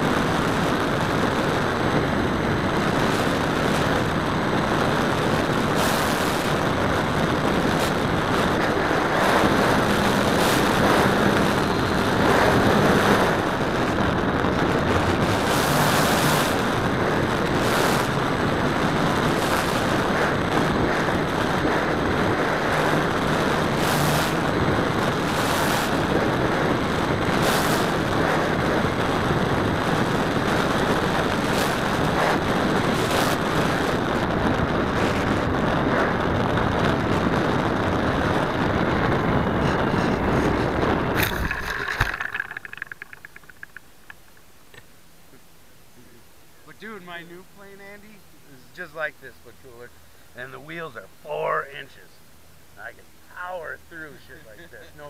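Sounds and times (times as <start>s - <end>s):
wind rush over microphone: 0.0s - 44.4s
propeller and motor hum: 0.0s - 55.0s.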